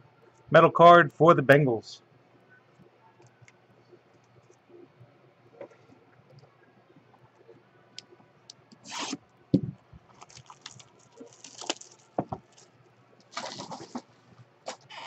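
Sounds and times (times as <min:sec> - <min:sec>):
plastic wrap crinkling: 0:10.0 - 0:14.8.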